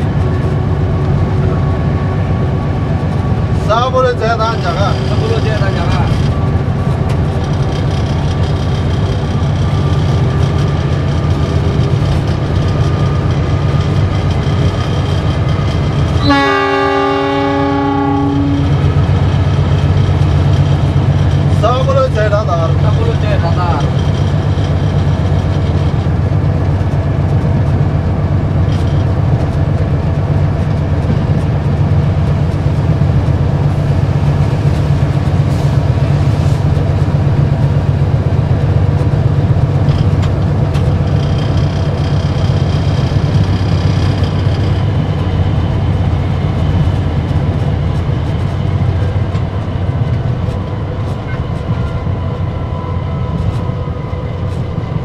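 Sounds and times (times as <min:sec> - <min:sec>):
diesel engine drone: 0:00.0 - 0:55.0
train running and rail noise: 0:00.0 - 0:55.0.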